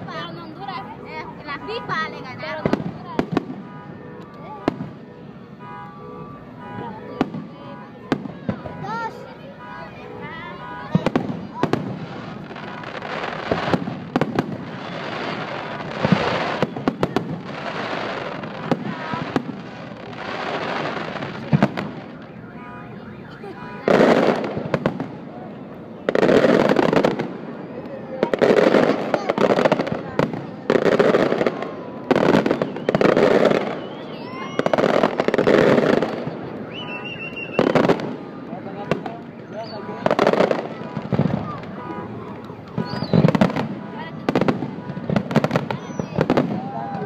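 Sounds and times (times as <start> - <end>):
fireworks bangs: 0.0 - 47.0
fireworks crackling: 0.0 - 47.0
high whistle: 32.4 - 35.1, 36.2 - 37.9, 42.8 - 43.3, 45.7 - 47.0.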